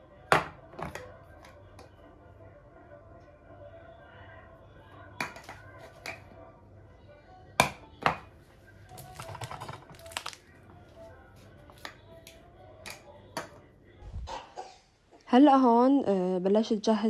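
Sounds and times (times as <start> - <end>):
soft background music: 0.0 - 17.0
plastic jars clicking and clattering: 9.0 - 10.4.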